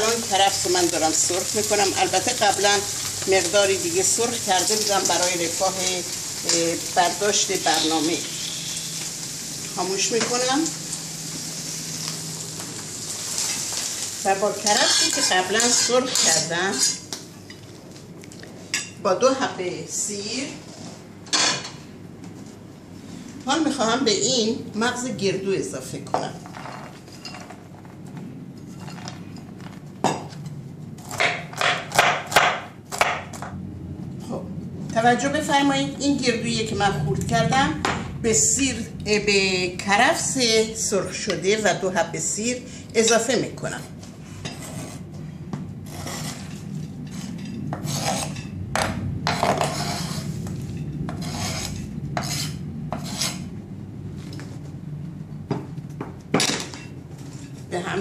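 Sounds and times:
knife chopping walnuts on board: 31.1s - 33.3s
steady low hum: 32.8s - 58.0s
knife scraping across cutting board: 44.2s - 45.1s, 45.8s - 48.4s, 49.3s - 53.5s.

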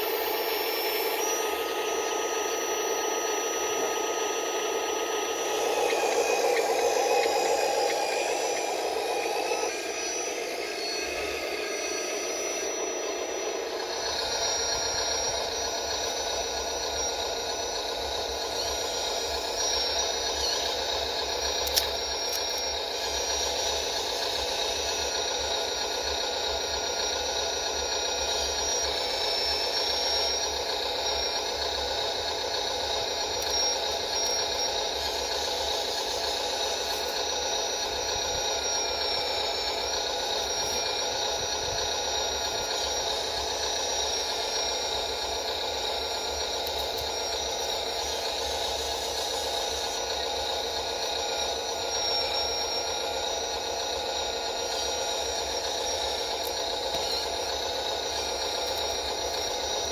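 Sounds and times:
low hum: 0.0s - 21.0s
high mechanical motor whine: 0.0s - 59.9s
sharp click: 21.6s - 22.6s.

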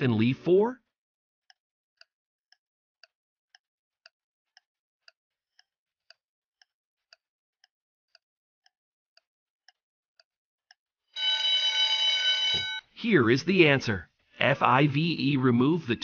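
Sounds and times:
faint clock ticking: 1.5s - 10.8s.

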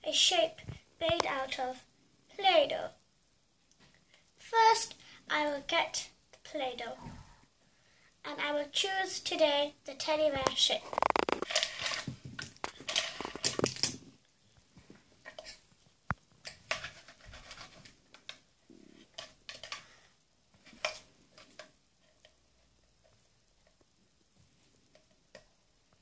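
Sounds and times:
plastic cookie cutters clattering: 10.4s - 14.1s, 15.2s - 19.9s.

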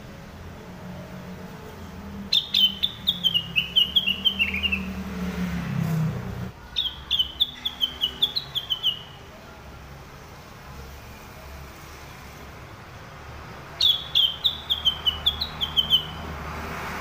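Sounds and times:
bulbul whistling song: 2.3s - 5.0s, 6.7s - 9.3s, 13.8s - 16.4s.

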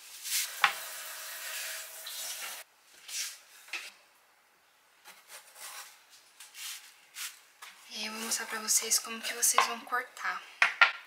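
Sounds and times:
kitchen tap running: 0.4s - 2.6s.

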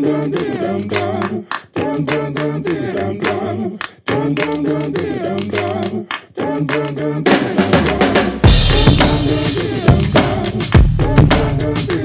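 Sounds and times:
hand claps: 0.0s - 8.3s
person singing: 0.0s - 12.0s.

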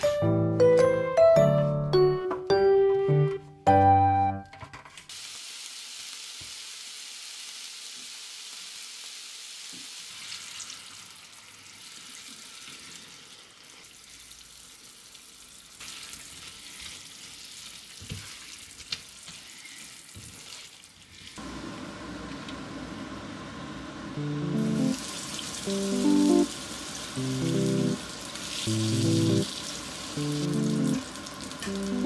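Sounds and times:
peppers sizzling in a frying pan: 5.1s - 21.4s, 24.6s - 32.0s.

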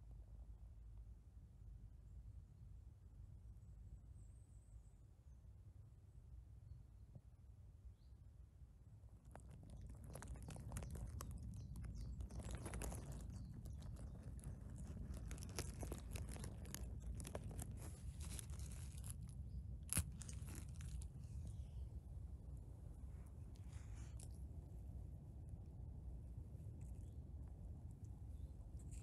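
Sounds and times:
low rumble: 8.8s - 29.0s
rustling of needles and twigs: 9.0s - 29.0s.

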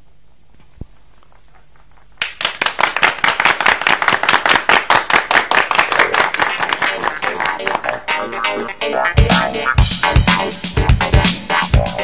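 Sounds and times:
applause: 2.2s - 8.0s.

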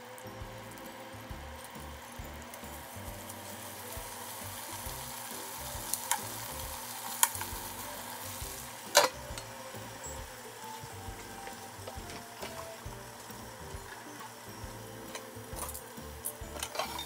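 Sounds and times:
chicken sizzling in a frying pan: 0.0s - 17.0s
metal tongs clicking on pan: 5.9s - 6.3s, 7.1s - 7.5s
pan lid clanking: 8.9s - 9.5s.

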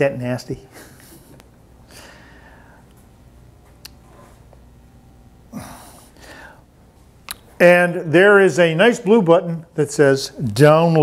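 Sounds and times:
person breathing softly: 1.9s - 2.9s, 5.5s - 6.7s.

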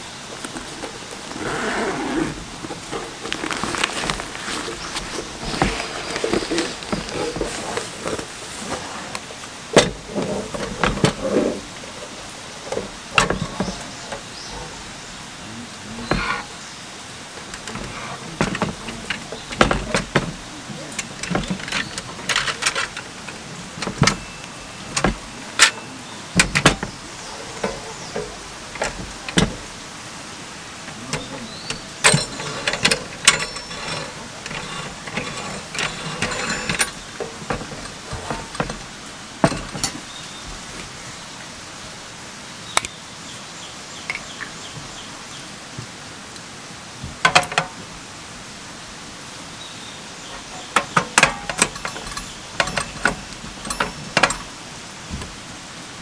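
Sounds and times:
metal clicks of folding stove: 50.4s - 54.5s.

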